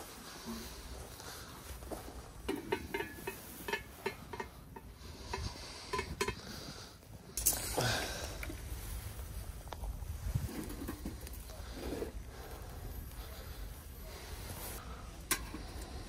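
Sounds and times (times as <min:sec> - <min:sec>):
metal handles clinking: 0:02.4 - 0:06.5.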